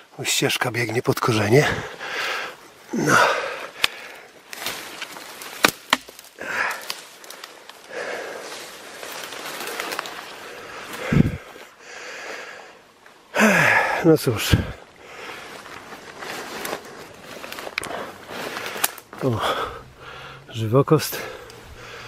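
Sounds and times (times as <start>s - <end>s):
twigs snapping: 3.7s - 11.1s, 15.2s - 20.4s
leaves and branches brushing: 3.7s - 11.8s, 14.1s - 22.0s
footsteps through undergrowth: 3.8s - 11.7s, 14.6s - 22.0s.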